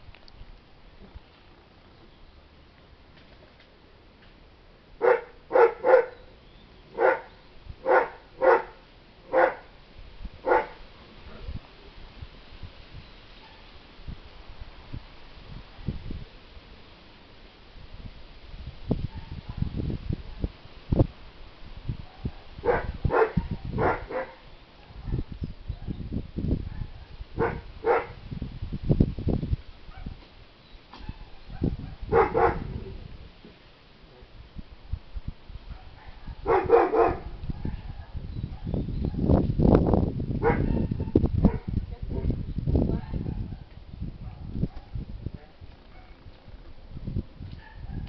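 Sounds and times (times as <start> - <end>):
dog barking: 5.0 - 6.2, 7.0 - 9.7, 10.4 - 10.8, 13.4 - 13.6, 19.1 - 19.7, 22.1 - 26.0, 26.7 - 28.2, 29.9 - 30.2, 31.0 - 32.8, 35.7 - 39.2, 40.4 - 41.7, 43.1 - 45.0, 45.9 - 46.2, 47.6 - 48.0.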